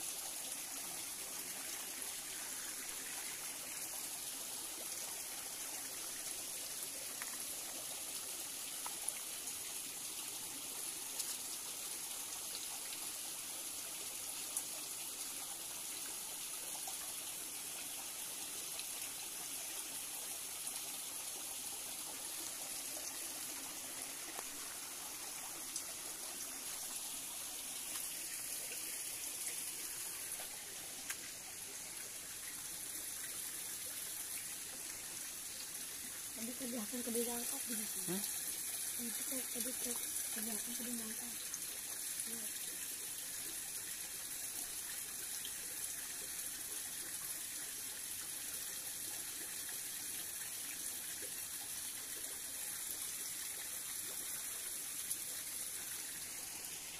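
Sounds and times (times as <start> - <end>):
stream trickling: 0.0 - 56.9.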